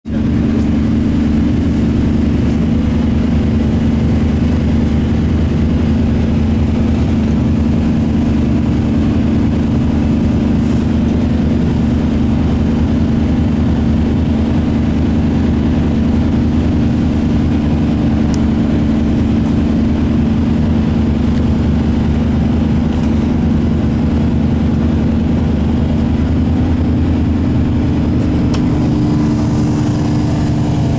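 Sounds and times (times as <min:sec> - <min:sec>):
boat engine droning: 0:00.0 - 0:30.9.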